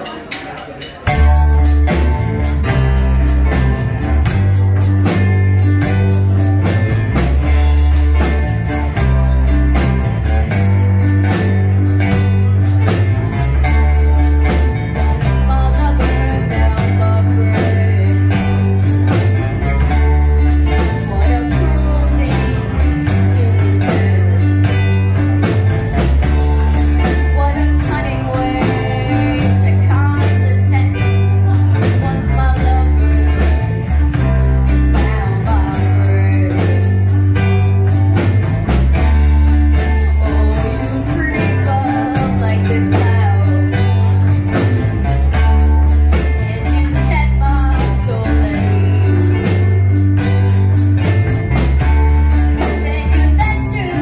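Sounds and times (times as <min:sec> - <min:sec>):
live rock band playing: 0:00.0 - 0:54.0
woman singing: 0:13.9 - 0:25.3, 0:26.0 - 0:37.8, 0:39.0 - 0:44.7, 0:45.4 - 0:50.8, 0:52.3 - 0:54.0.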